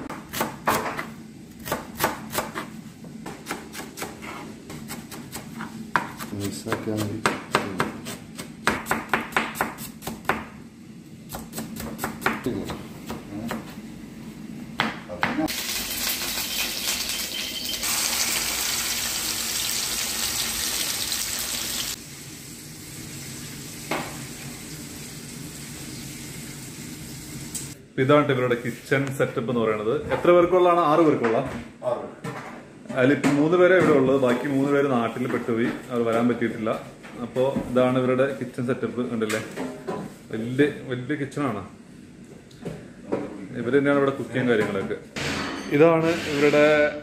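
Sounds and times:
knife chopping on cutting board: 0.1s - 10.6s, 11.3s - 13.8s
fish sizzling in hot oil: 15.5s - 27.7s.

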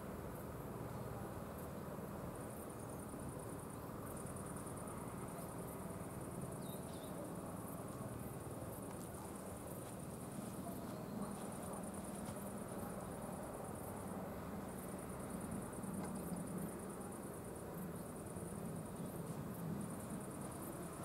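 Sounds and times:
crickets chirring: 0.0s - 21.0s.

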